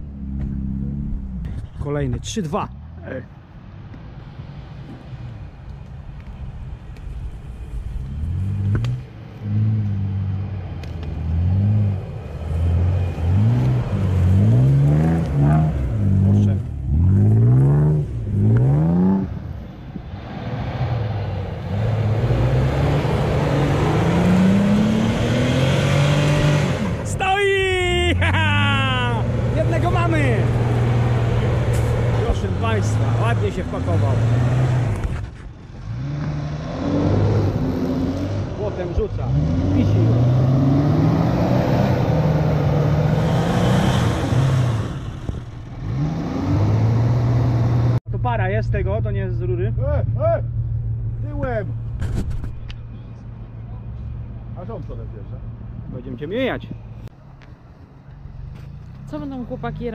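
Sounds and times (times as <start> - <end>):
suv engine revving hard: 20.3 - 27.1, 29.2 - 35.0, 35.8 - 45.2, 45.8 - 48.0.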